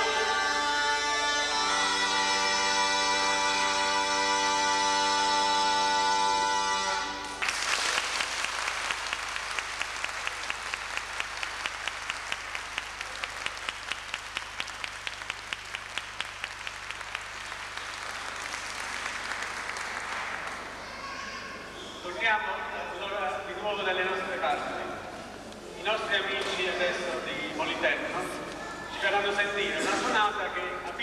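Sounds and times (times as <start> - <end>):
droning folk pipe music: 0.0 - 7.4
rhythmic clapping in unison: 7.2 - 20.8
audience applauding: 7.2 - 21.1.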